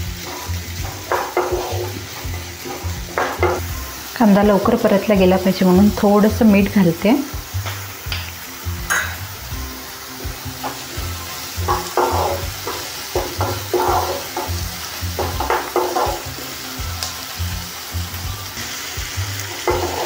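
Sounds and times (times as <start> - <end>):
background music with low notes: 0.0 - 20.0
onions sizzling: 0.0 - 20.0
spatula scraping a pan: 0.2 - 3.8, 10.1 - 16.4, 19.6 - 20.0.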